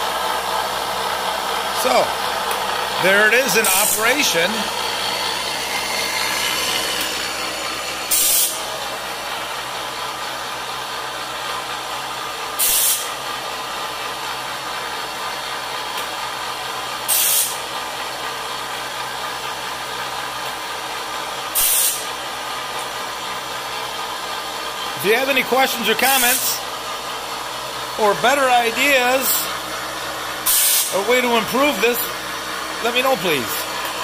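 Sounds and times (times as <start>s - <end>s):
electric motor humming: 0.2s - 10.1s
grinding wheel on steel teeth: 2.9s - 8.9s.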